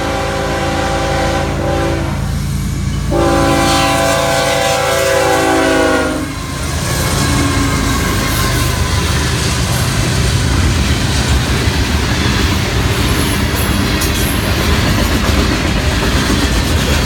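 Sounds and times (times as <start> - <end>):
locomotive air horn blasts: 0.0 - 2.4, 3.0 - 8.8
locomotive engine rumbling: 0.0 - 17.0
train wheels rumbling: 0.0 - 17.0.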